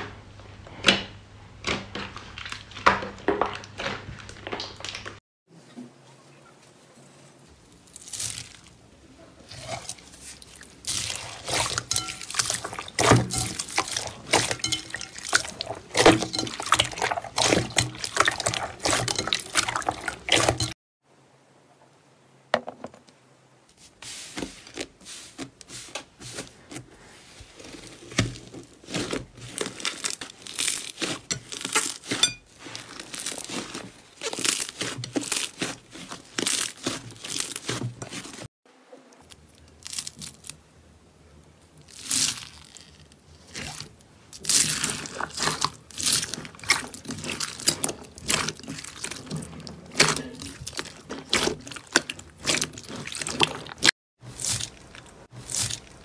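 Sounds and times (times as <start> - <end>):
slime squelching and crackling: 1.6 - 5.2, 7.7 - 20.8, 24.3 - 38.5, 39.2 - 40.6, 41.6 - 56.0
plastic beads crunching: 7.9 - 8.8, 27.6 - 38.4, 39.7 - 40.6, 41.8 - 56.0.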